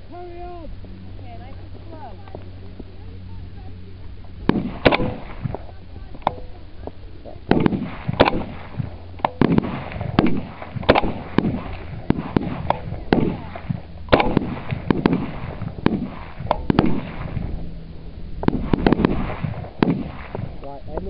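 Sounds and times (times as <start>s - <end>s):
rifle shots: 4.4s - 5.6s, 7.4s - 17.6s, 18.4s - 20.6s.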